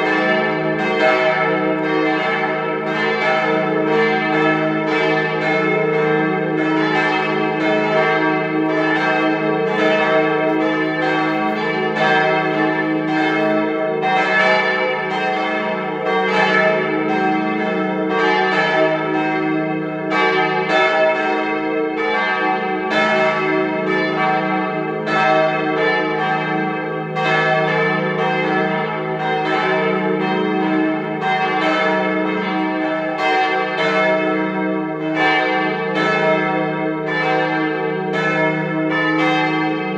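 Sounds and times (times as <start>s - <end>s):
church bells ringing: 0.0s - 39.9s.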